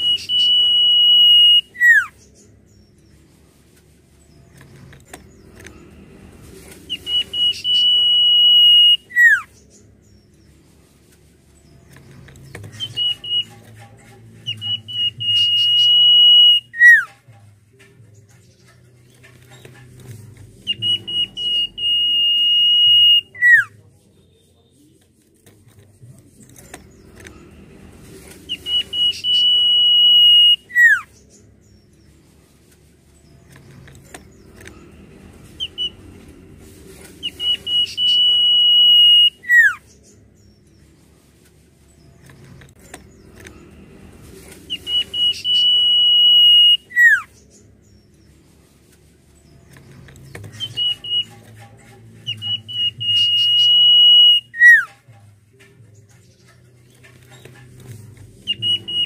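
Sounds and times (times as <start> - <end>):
bird whistling song: 0.0 - 2.8, 6.9 - 9.8, 12.6 - 17.2, 20.6 - 23.7, 28.5 - 31.8, 35.6 - 36.2, 37.2 - 40.5, 44.7 - 48.0, 50.4 - 51.6, 52.2 - 55.0, 58.4 - 59.0.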